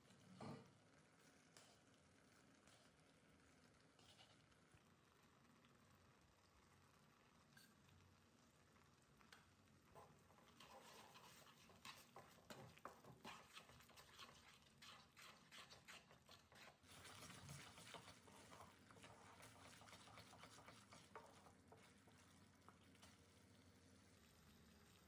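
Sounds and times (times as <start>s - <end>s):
soft sizzle of simmering mixture: 0.0s - 25.0s
wooden spatula scraping pan: 10.0s - 22.3s.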